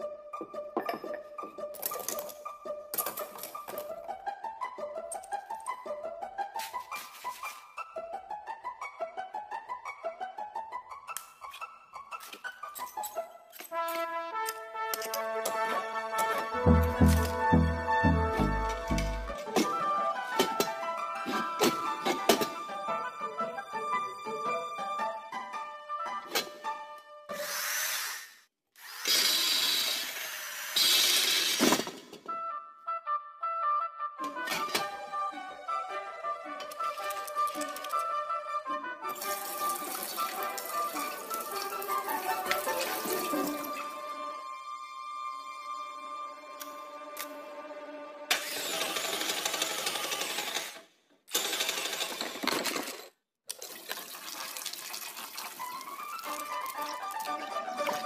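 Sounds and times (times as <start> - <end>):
light background music: 0.0 - 27.4, 32.3 - 48.6, 55.6 - 58.0.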